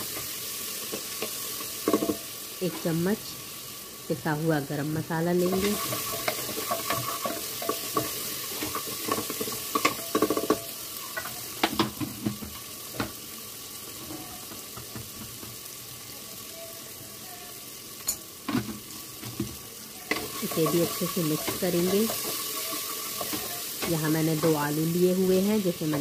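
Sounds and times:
masala sizzling in a pot: 0.0 - 26.0
spatula scraping and knocking pot: 5.4 - 12.0, 20.1 - 24.7.

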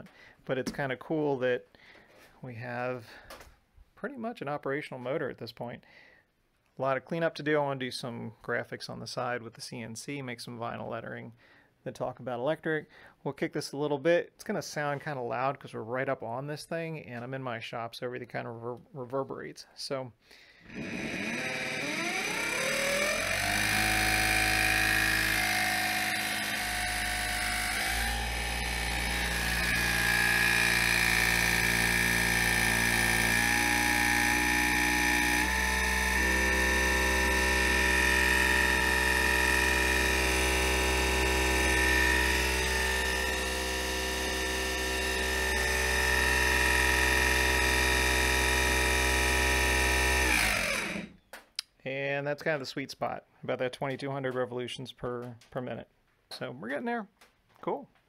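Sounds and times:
electric motor and gear whine: 20.7 - 51.2.

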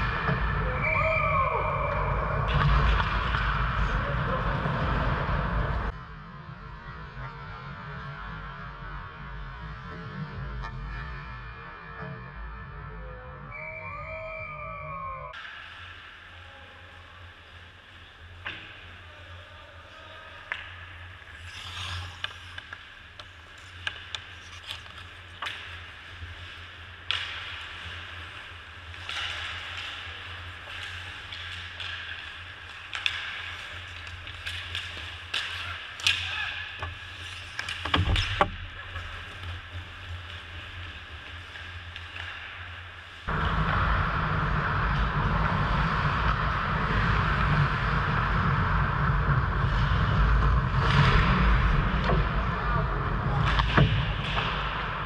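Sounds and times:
hockey sticks and puck clacking: 0.0 - 5.7, 17.6 - 44.0, 44.8 - 55.0
low rink rumble: 0.0 - 55.0.

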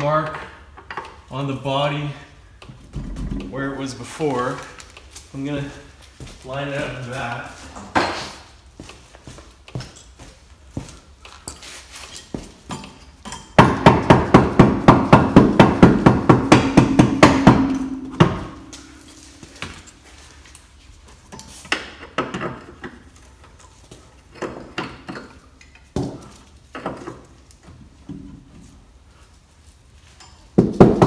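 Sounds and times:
tools clinking: 11.2 - 13.6, 30.1 - 30.6
hammer striking metal: 13.3 - 19.8.

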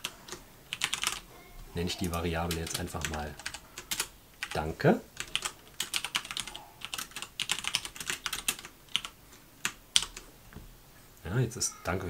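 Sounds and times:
typing on computer keyboard: 0.0 - 1.3, 2.0 - 4.6, 5.2 - 10.2.

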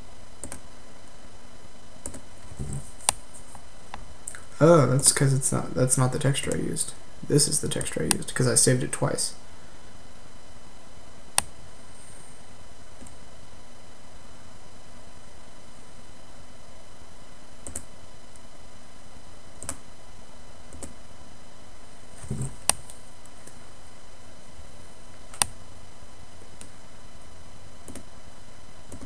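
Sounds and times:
steady hiss with faint hum: 0.0 - 29.0
computer mouse clicks: 0.4 - 0.6, 2.0 - 2.2, 17.6 - 18.4, 19.6 - 19.8, 20.7 - 21.0, 25.3 - 25.6, 27.8 - 28.1.

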